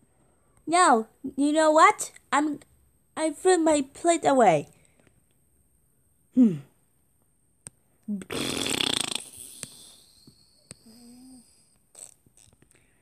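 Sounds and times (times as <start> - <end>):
breathy vocal hiss: 8.2 - 13.0.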